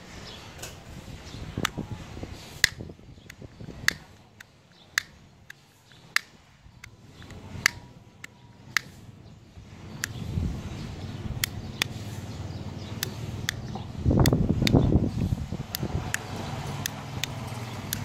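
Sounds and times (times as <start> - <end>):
plastic switches clicking: 2.6 - 9.0, 13.0 - 14.8, 15.7 - 18.0.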